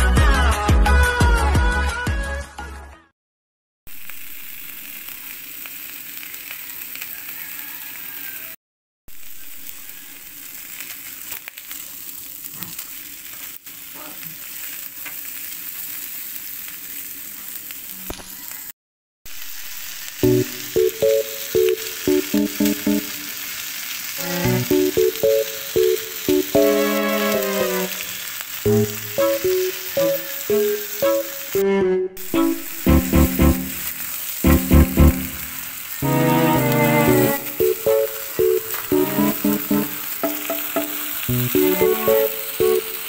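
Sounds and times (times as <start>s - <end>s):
ribs sizzling: 3.9s - 8.5s, 9.1s - 18.7s, 19.3s - 43.0s
music with pitched notes: 20.2s - 23.3s, 24.2s - 28.1s, 28.7s - 43.0s.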